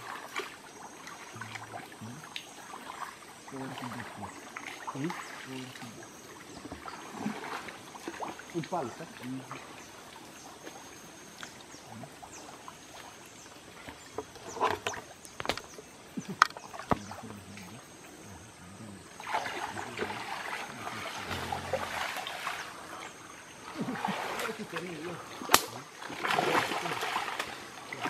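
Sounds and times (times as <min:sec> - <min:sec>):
water splashing and sloshing: 0:00.0 - 0:18.4, 0:19.0 - 0:28.0.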